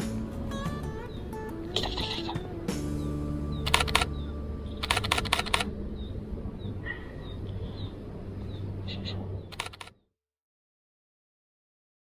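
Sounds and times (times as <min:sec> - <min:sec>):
rapid camera shutter clicks: 0:03.6 - 0:04.1, 0:04.8 - 0:05.7, 0:09.5 - 0:10.0
faint bird chirps: 0:05.9 - 0:10.1.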